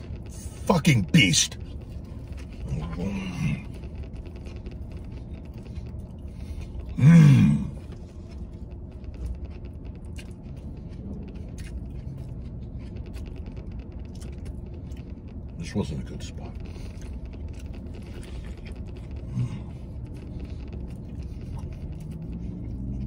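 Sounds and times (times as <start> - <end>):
low steady rumble: 0.0 - 23.0
man chewing food: 0.0 - 23.0
muffled vocal sounds: 6.8 - 8.0.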